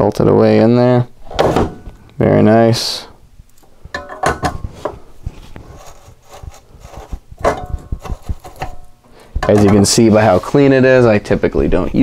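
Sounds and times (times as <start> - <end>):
soldering iron scraping metal stand: 4.9 - 10.6.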